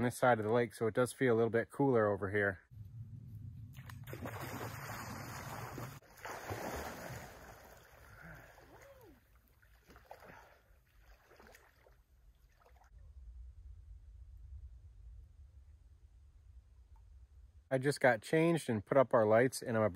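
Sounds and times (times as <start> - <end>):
water splashing: 3.7 - 12.9
person swimming: 4.0 - 12.9.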